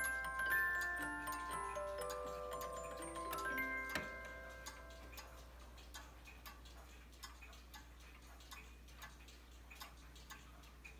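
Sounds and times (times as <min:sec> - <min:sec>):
clock tune notes ringing: 0:00.0 - 0:05.6
clock ticking: 0:00.0 - 0:10.9.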